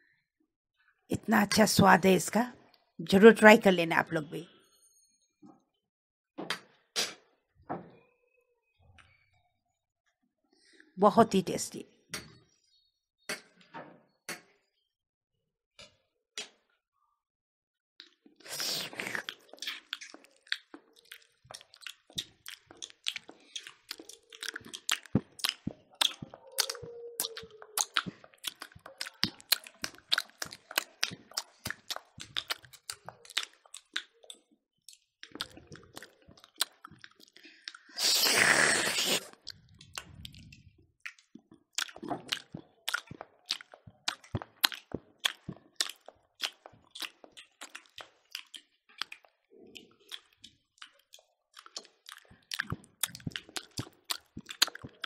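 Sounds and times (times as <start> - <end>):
chewing and lip smacking: 18.0 - 55.0.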